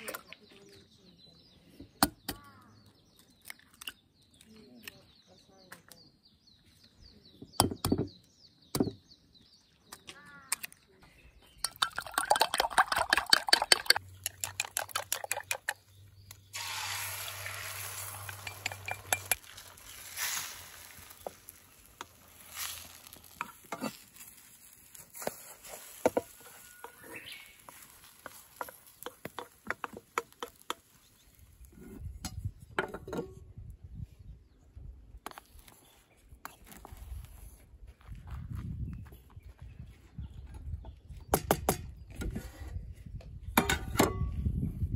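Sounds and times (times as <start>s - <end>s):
eggs beaten in a bowl: 11.6s - 15.8s
eggs sizzling in a frying pan: 16.5s - 31.6s
spoon scraping a pan: 17.7s - 19.9s, 22.0s - 32.4s.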